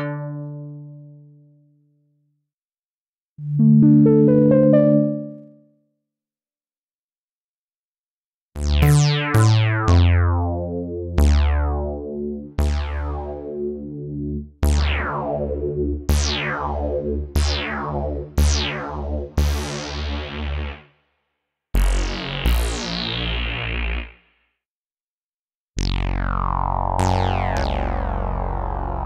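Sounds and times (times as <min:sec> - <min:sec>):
plucked synth notes and chords: 0:03.4 - 0:05.7, 0:08.6 - 0:20.2.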